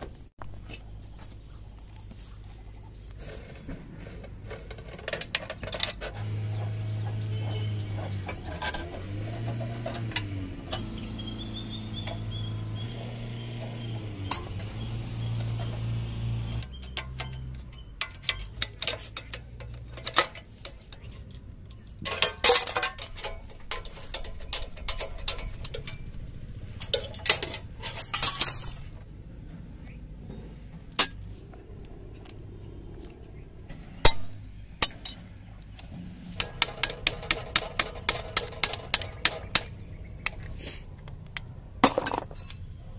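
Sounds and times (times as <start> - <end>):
tools clinking on metal: 14.2 - 14.7, 16.7 - 26.2, 26.8 - 28.9, 31.0 - 31.3, 34.0 - 35.3, 41.4 - 42.9
steady low hum: 23.2 - 36.7.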